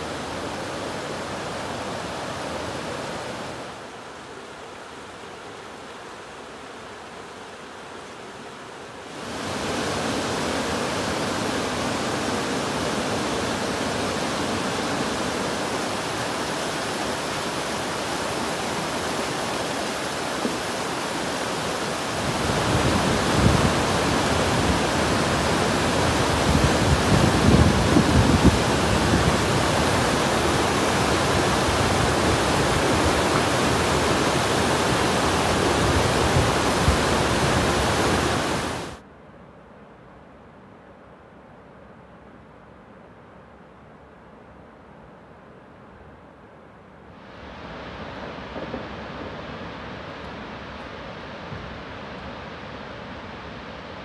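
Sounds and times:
waterfall rushing: 0.0 - 6.4, 9.0 - 39.0
floodwater rushing: 0.0 - 39.0.

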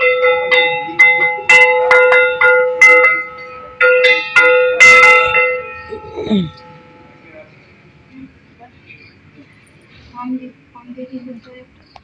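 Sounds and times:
hand bell ringing: 0.0 - 7.4.

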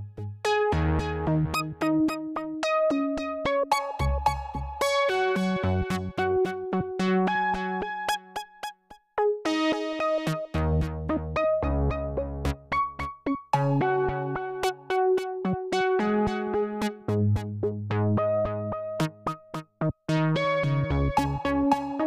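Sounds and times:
electronic keyboard melody: 0.0 - 22.0.

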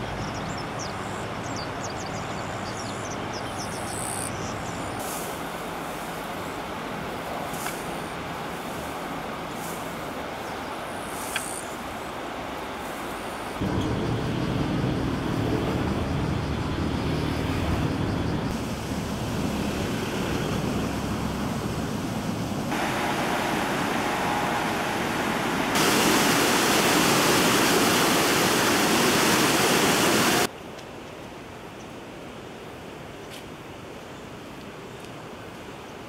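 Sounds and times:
river rushing over rapids: 18.5 - 30.5.

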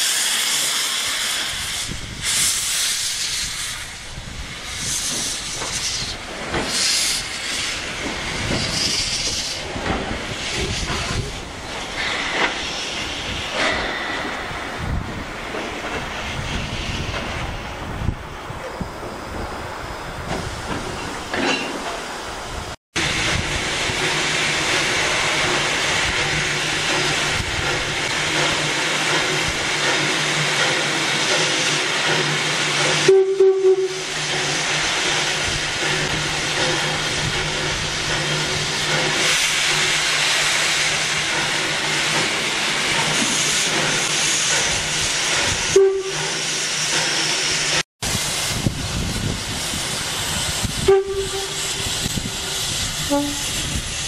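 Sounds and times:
steam locomotive hissing: 0.0 - 54.0
steam whistle toots: 33.0 - 34.1, 45.7 - 46.4, 50.7 - 53.8.

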